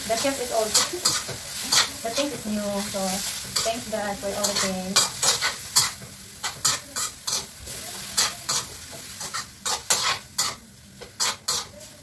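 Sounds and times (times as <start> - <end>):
pork sizzling: 0.0 - 12.0
spatula scraping frying pan: 0.0 - 12.0.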